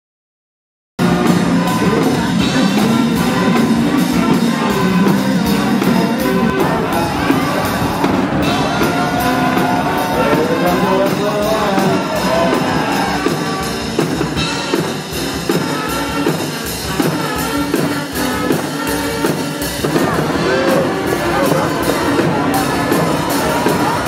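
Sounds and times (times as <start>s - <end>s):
crowd cheering: 1.0s - 14.9s, 17.6s - 24.0s
band music with drumbeat: 1.0s - 24.0s
voices singing along: 1.2s - 13.7s, 19.9s - 24.0s.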